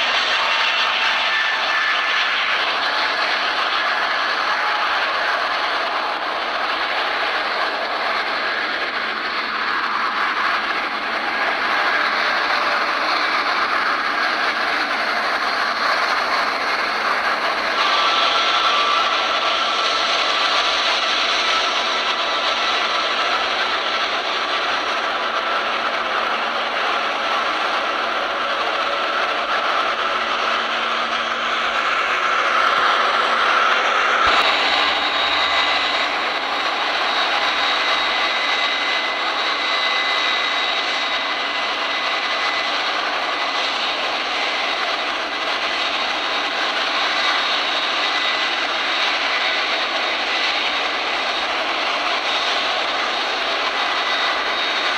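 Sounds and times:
jet engines rushing and whining: 0.0 - 54.9.

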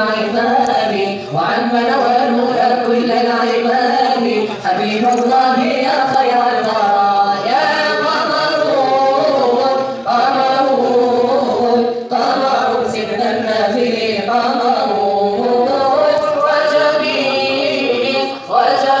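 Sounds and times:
person chanting unaccompanied: 0.0 - 19.0.

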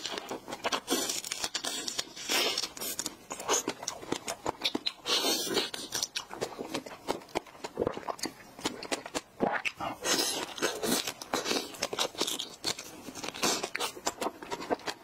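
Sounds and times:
biting and chewing: 0.0 - 15.0.

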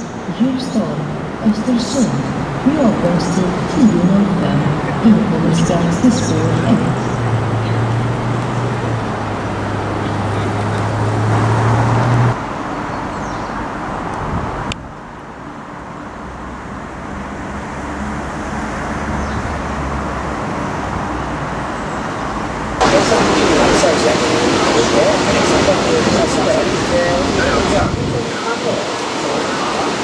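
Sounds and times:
low drone: 0.0 - 12.6, 16.5 - 30.0
station noise: 0.0 - 12.9, 19.6 - 30.0
electric locomotive hum: 0.0 - 30.0.

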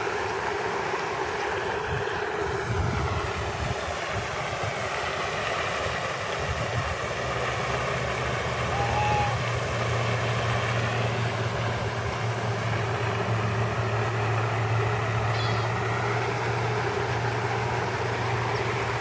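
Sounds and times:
steady low hum: 0.0 - 19.0
bird call: 15.3 - 15.8.

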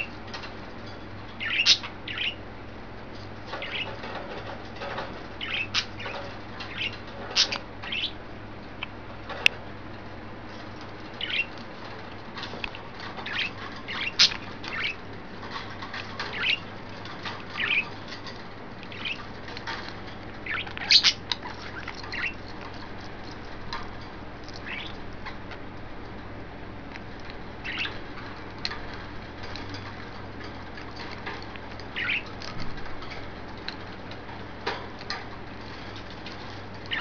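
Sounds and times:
budgerigars chirping: 1.4 - 2.4, 3.5 - 4.2, 4.8 - 8.2, 11.2 - 11.5, 13.2 - 15.0, 15.9 - 16.7, 17.5 - 18.2, 18.9 - 19.3, 20.4 - 22.4, 24.6 - 25.0, 27.6 - 28.1, 31.9 - 32.4.

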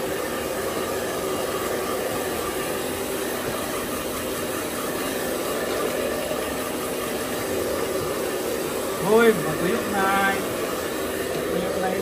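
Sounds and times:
hair dryer running: 0.0 - 12.0.

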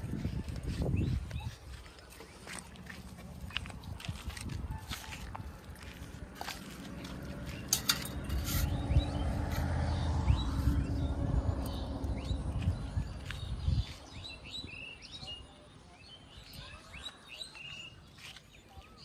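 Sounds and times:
small birds chirping: 0.0 - 19.0
low steady rumble: 5.8 - 14.3.

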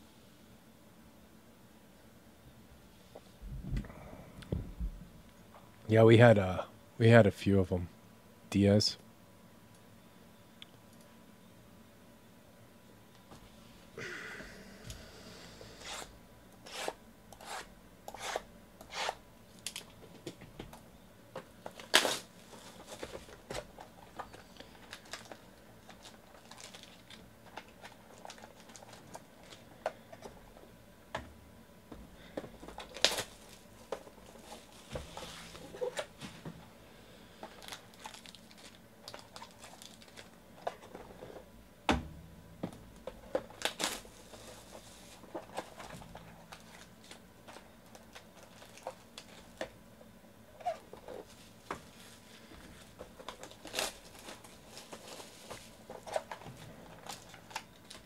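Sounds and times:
packaging tearing: 21.7 - 23.0, 24.8 - 29.6, 32.8 - 33.6, 37.5 - 40.4, 43.5 - 44.3, 53.2 - 56.4.

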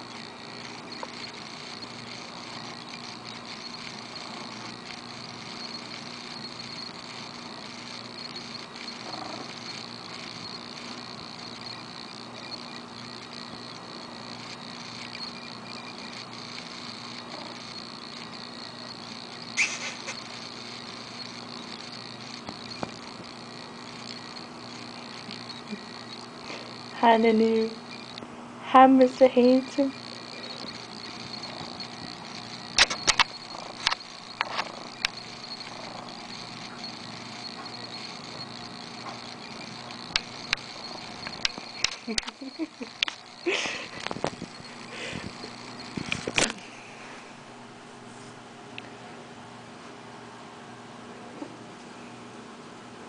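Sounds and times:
cat purring: 0.0 - 28.2, 29.1 - 46.4
sharp click: 30.6 - 35.8.

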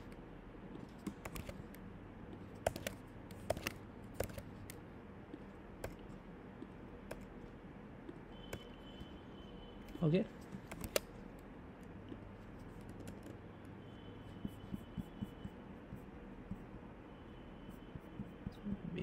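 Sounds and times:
keyboard keys clicking: 1.0 - 1.8, 2.6 - 4.8, 10.6 - 11.1.

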